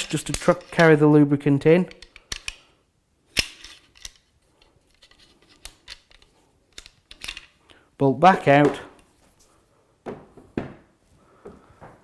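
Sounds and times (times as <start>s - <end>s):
rifle bolt clicking and sliding: 1.9s - 2.6s, 3.3s - 7.5s.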